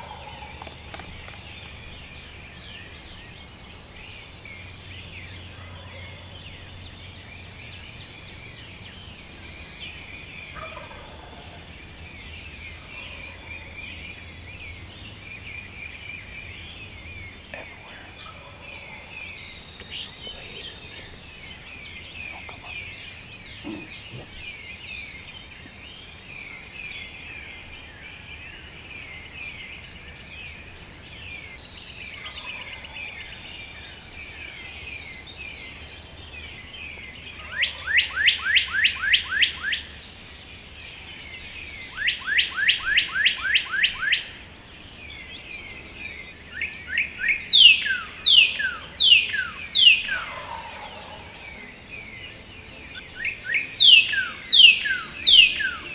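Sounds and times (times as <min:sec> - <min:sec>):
songbirds chirping and trilling: 0:00.0 - 0:55.9
turkeys gobbling: 0:10.6 - 0:11.6, 0:23.6 - 0:24.3, 0:49.8 - 0:51.4.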